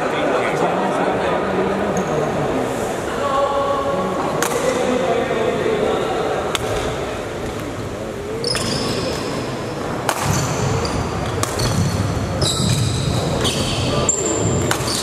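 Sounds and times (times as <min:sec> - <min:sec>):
racket hitting shuttlecock: 0:04.4 - 0:04.7, 0:10.0 - 0:13.7, 0:14.5 - 0:15.0
high shoe squeaks: 0:08.4 - 0:09.4, 0:10.3 - 0:15.0.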